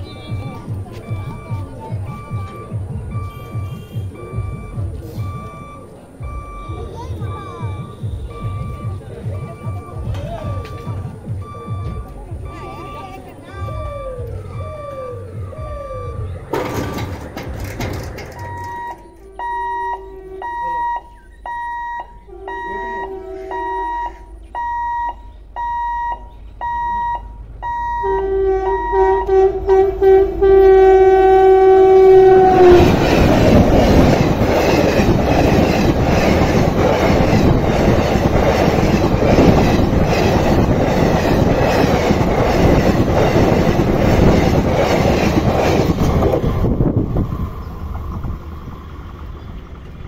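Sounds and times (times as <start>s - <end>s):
train wheels clickety-clack: 0.0s - 12.8s, 16.4s - 19.5s, 32.3s - 50.0s
electronic beeping: 0.0s - 17.1s, 17.8s - 29.3s
locomotive horn: 3.2s - 4.4s, 18.5s - 40.8s.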